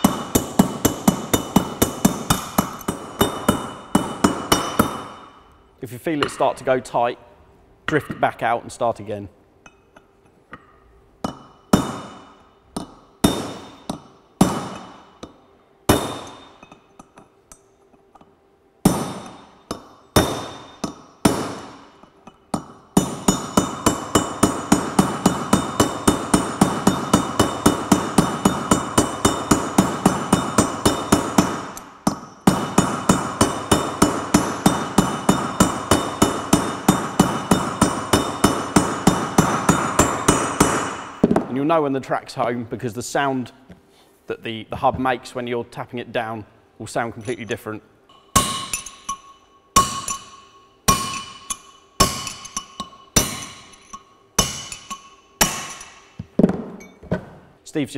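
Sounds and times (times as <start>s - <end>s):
hammer striking steel: 0.0s - 5.5s, 9.7s - 41.5s, 47.2s - 57.0s.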